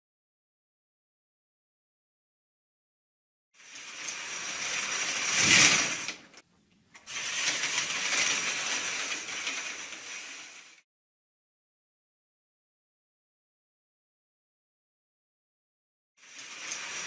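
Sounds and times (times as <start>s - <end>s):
theatre curtains sliding: 3.6s - 6.4s, 7.0s - 10.8s, 16.2s - 17.0s.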